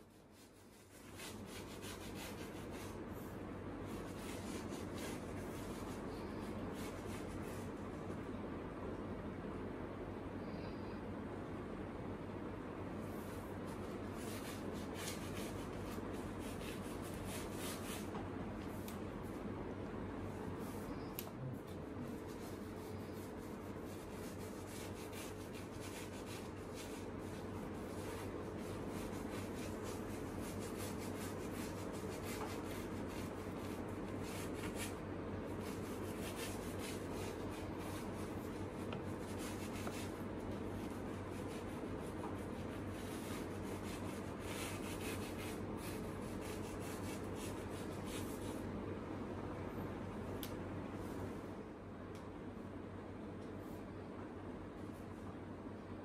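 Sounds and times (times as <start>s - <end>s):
paintbrush scrubbing canvas: 0.0s - 8.2s, 13.0s - 19.4s, 21.6s - 48.7s
steady low hum: 0.0s - 56.0s.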